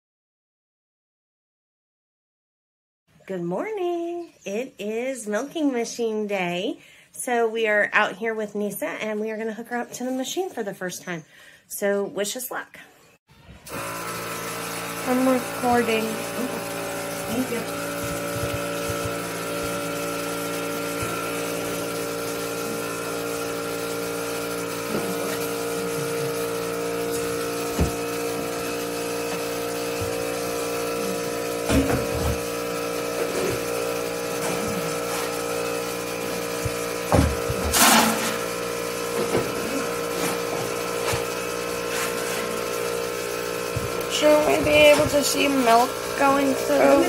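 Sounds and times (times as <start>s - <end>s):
vacuum pump humming: 13.4s - 47.0s.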